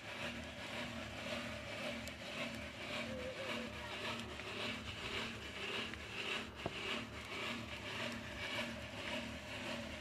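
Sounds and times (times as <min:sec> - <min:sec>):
rhythmic scraping of copper pot: 0:00.0 - 0:10.0.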